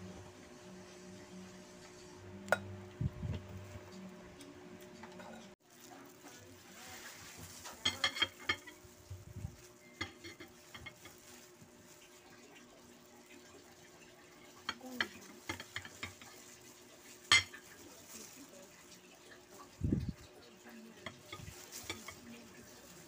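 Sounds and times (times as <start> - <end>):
kitchenware clinking: 5.0 - 5.6, 7.4 - 11.5, 14.5 - 18.2, 21.0 - 23.0.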